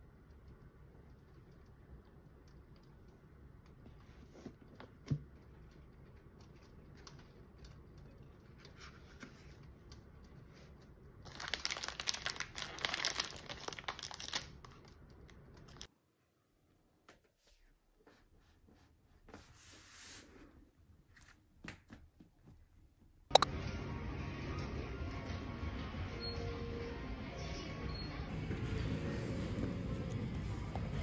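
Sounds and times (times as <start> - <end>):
plastic bag crinkling: 11.2 - 15.9.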